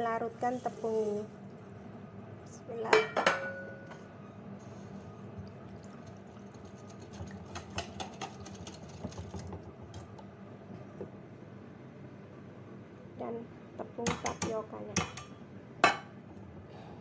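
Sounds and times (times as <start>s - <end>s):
whisk scraping steel bowl: 6.5s - 9.4s.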